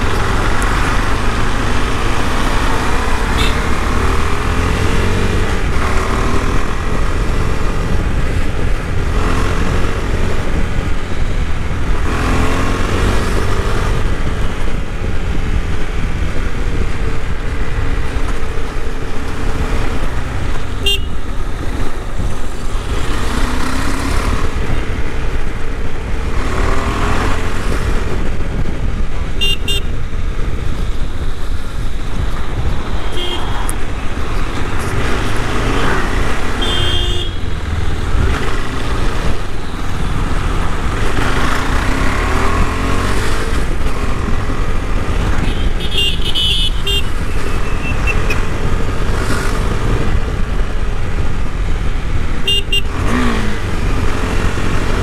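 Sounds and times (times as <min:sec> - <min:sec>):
motorcycle engine revving: 0:00.0 - 0:18.2, 0:19.1 - 0:55.0
wind and road noise: 0:00.0 - 0:55.0
short horn toots: 0:03.3 - 0:03.7.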